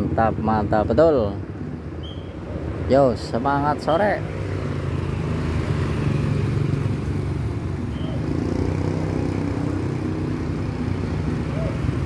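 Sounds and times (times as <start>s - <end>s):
motor scooter passing: 4.3s - 12.0s.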